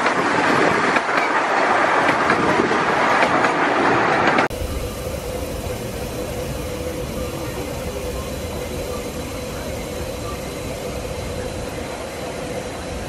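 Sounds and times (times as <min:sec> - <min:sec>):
steam locomotive hissing: 0:00.0 - 0:13.0
constant hum: 0:04.5 - 0:13.0.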